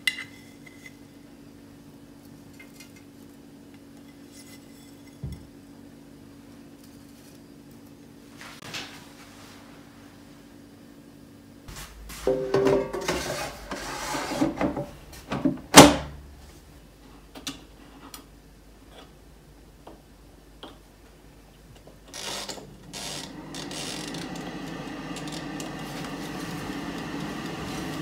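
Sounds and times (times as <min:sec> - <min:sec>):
air fryer fan running: 0:12.0 - 0:16.6, 0:22.0 - 0:28.0
air fryer basket handled: 0:12.2 - 0:13.8.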